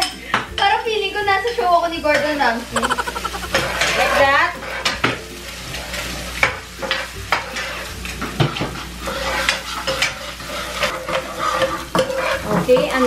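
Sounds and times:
food sizzling in hot oil: 2.6 - 13.0
utensils scraping frying pans: 2.9 - 13.0.

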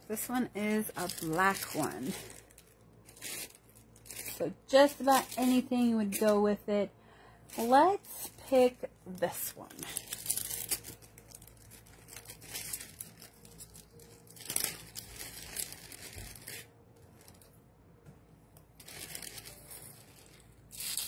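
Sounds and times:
plastic bags crinkling: 0.0 - 6.5, 7.5 - 17.6, 18.7 - 21.0.

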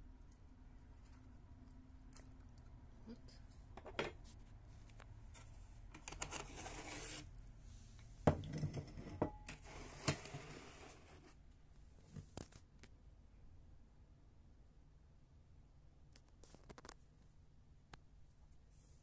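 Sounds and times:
soft rustling and crackling: 10.0 - 13.0, 16.1 - 19.0.

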